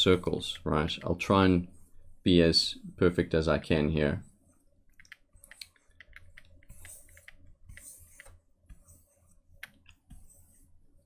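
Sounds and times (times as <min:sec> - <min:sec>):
stylus clicking on tablet: 0:04.9 - 0:10.4
stylus scratchy strokes: 0:05.3 - 0:11.0.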